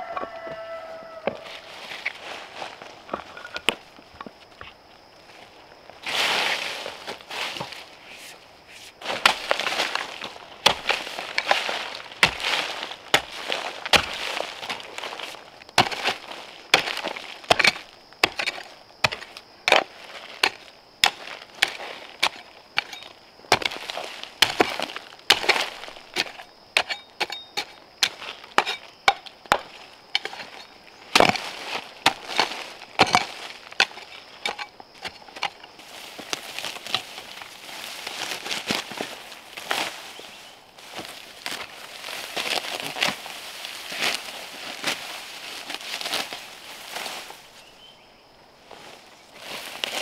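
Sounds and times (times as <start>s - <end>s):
leaves and earth scraping: 0.0s - 50.0s
hoe chopping into soil: 7.4s - 37.2s.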